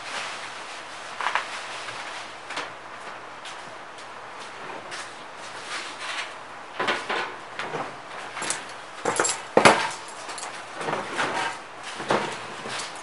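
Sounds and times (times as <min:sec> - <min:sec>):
metal parts clanking on workbench: 0:08.4 - 0:13.0.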